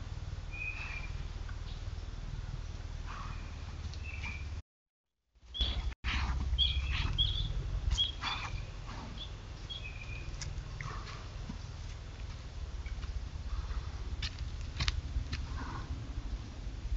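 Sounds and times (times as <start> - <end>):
small bird chirping: 3.3 - 4.6, 5.5 - 5.9, 6.5 - 10.6
steady low hum: 5.7 - 16.9.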